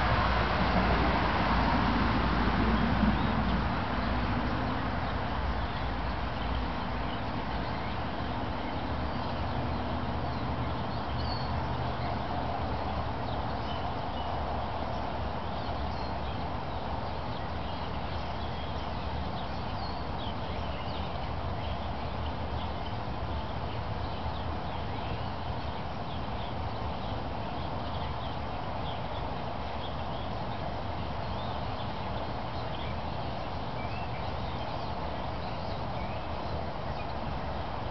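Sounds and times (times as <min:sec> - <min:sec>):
vehicle passing: 0:00.0 - 0:05.5.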